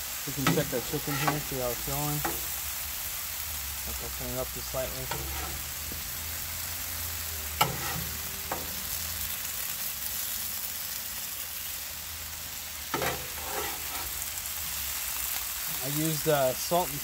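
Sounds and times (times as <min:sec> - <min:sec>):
meat sizzling on a griddle: 0:00.0 - 0:17.0
metal spatula clanking and scraping: 0:00.3 - 0:02.6, 0:04.7 - 0:05.7, 0:07.6 - 0:09.0, 0:12.9 - 0:14.2.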